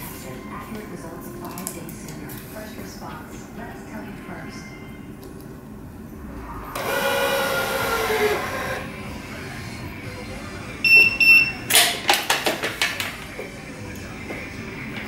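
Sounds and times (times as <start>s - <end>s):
short electronic beeps: 10.8s - 11.7s.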